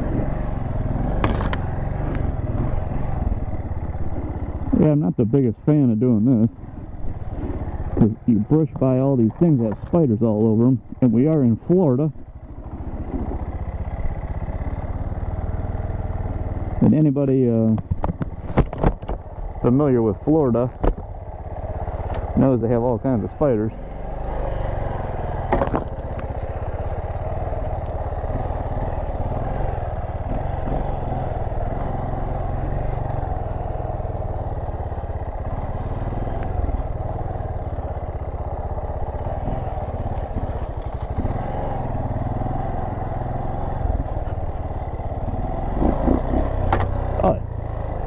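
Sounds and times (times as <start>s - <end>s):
dirt bike engine running: 0.0s - 48.0s
faint knocks from bike: 17.6s - 19.3s, 20.7s - 21.1s, 46.6s - 47.0s.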